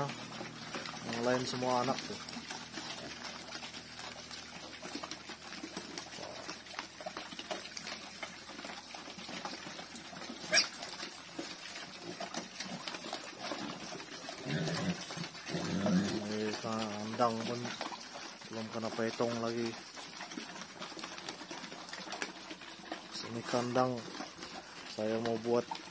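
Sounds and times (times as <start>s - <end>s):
pigs slurping wet feed: 0.0s - 25.9s
pig squealing: 10.2s - 11.1s, 14.2s - 16.3s.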